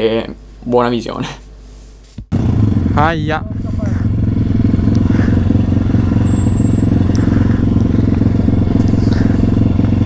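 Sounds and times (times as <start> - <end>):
motorbike engine at low revs: 2.3 - 10.0.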